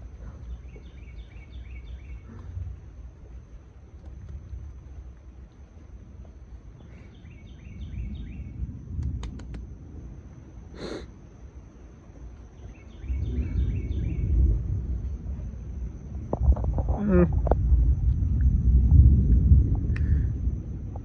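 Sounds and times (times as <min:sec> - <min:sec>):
low rumble of thunder: 0:00.0 - 0:21.0
bird chirping: 0:12.5 - 0:14.5.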